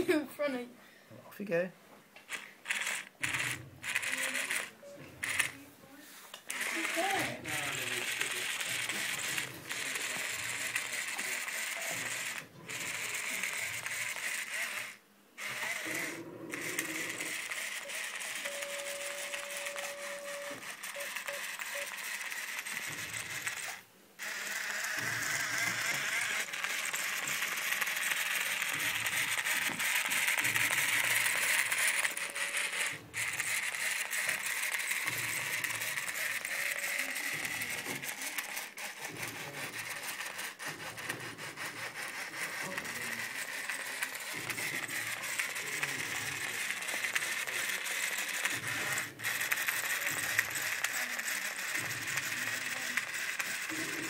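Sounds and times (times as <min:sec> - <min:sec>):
toy motor whirring and clicking: 0:02.2 - 0:05.6, 0:06.3 - 0:54.0.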